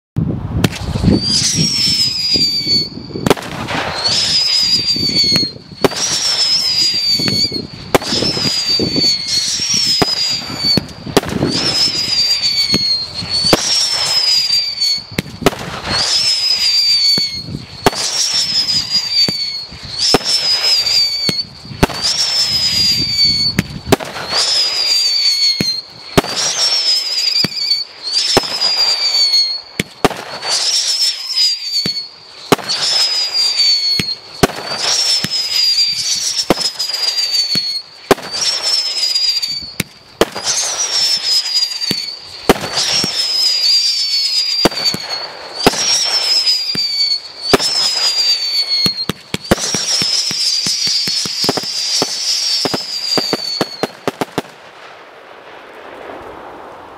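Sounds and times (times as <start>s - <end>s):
firework whistle: 0.4s - 55.0s
firework launch bangs: 0.6s - 56.9s
hissing crackling firework spray: 0.7s - 56.9s.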